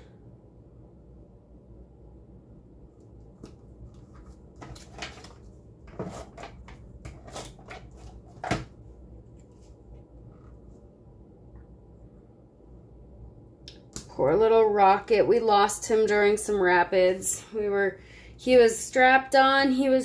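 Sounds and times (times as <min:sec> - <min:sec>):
paper rustling: 0:03.9 - 0:08.6.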